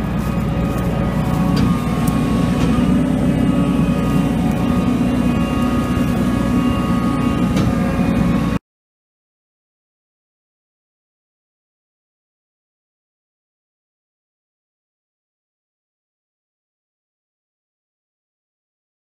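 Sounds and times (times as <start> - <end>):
faint whines: 0.0 - 8.6
heavy machine deep drone: 0.0 - 8.6.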